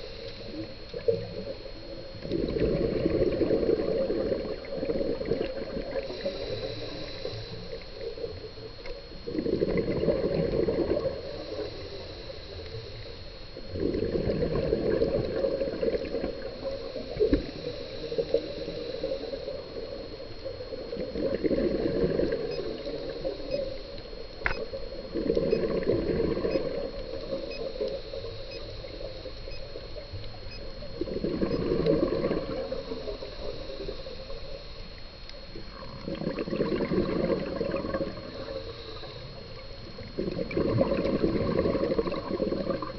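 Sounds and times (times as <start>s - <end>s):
inhale hiss: 0.0s - 2.2s, 5.8s - 8.3s, 10.9s - 13.3s, 15.3s - 20.6s, 38.0s - 40.1s
bubbling regulator exhales: 0.0s - 8.5s, 9.2s - 12.0s, 13.6s - 23.6s, 24.8s - 28.3s, 30.8s - 34.5s, 35.6s - 42.9s
thin steady high whine: 0.0s - 42.9s.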